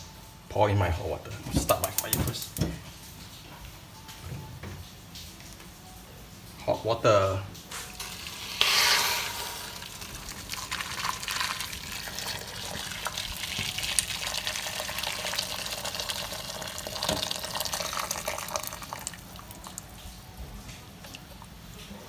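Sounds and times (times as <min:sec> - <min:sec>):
water pouring into metal pot: 0:08.0 - 0:20.0.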